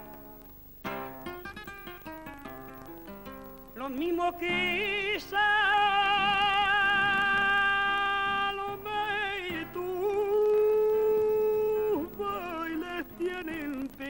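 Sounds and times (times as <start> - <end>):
man singing long notes: 3.8 - 14.0.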